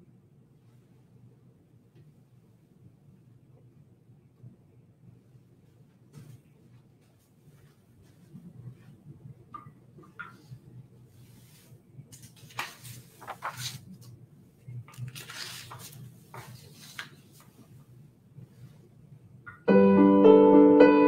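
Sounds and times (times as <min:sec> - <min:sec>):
soft rustling and handling: 0:05.3 - 0:19.2
piano chords: 0:19.5 - 0:21.0.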